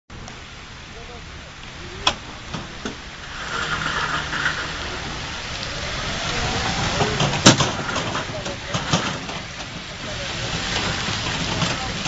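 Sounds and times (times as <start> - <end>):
ride-on train wheels hissing: 0.3 - 12.0.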